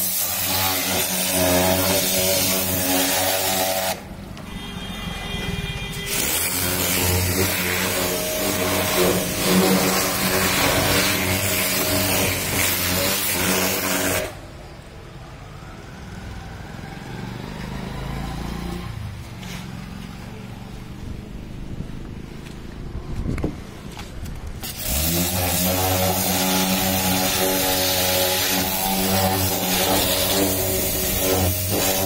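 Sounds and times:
water jet hissing against car: 0:00.0 - 0:04.0, 0:06.1 - 0:14.4, 0:24.6 - 0:32.0
pressure washer pump hum: 0:00.0 - 0:04.1, 0:06.1 - 0:14.4, 0:24.6 - 0:32.0.

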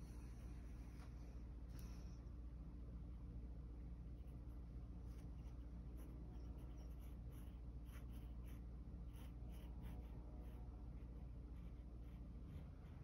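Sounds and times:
faint low hum: 0:00.0 - 0:13.0
marker pen scratching on paper: 0:05.1 - 0:13.0.

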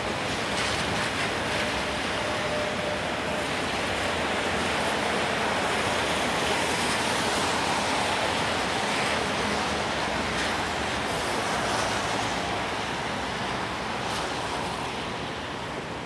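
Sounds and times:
falling rain: 0:00.0 - 0:15.7
traffic on wet pavement: 0:00.0 - 0:16.0.

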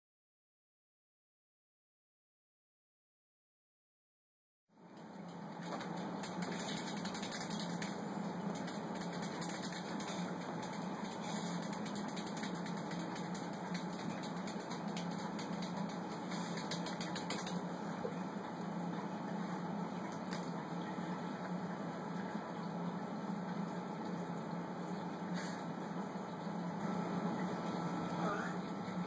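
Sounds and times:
aquarium pump humming: 0:04.8 - 0:29.0
fast irregular ticking: 0:06.0 - 0:17.6.

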